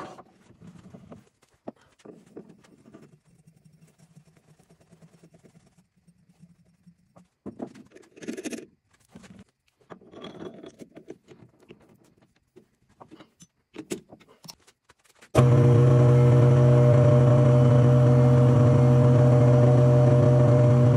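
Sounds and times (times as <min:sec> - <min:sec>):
metal tools clinking and scraping: 0:09.8 - 0:11.5, 0:13.0 - 0:14.6
lathe running hum: 0:15.4 - 0:20.9.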